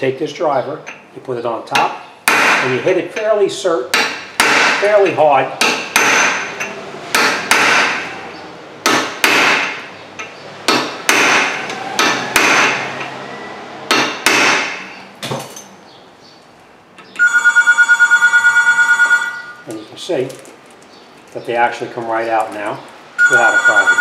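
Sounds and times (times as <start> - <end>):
hammer striking metal impact driver: 5.6 - 8.1, 8.8 - 12.8.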